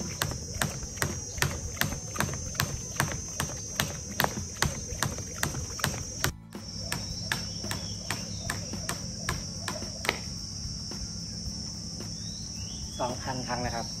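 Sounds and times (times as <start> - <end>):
jump rope hitting rubber mat: 0.0 - 10.3.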